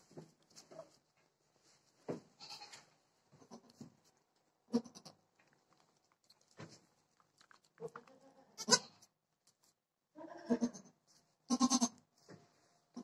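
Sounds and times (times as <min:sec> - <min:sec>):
goats bleating: 0:07.8 - 0:09.0, 0:11.5 - 0:12.0.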